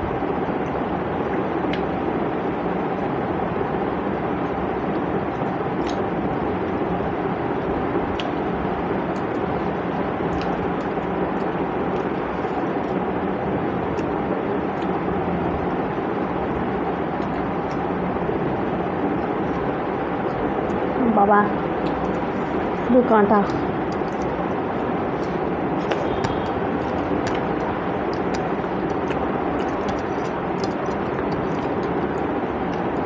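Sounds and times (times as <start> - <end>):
background rumble and hiss: 0.0 - 33.0
faint clicks eating off a plate: 27.2 - 33.0.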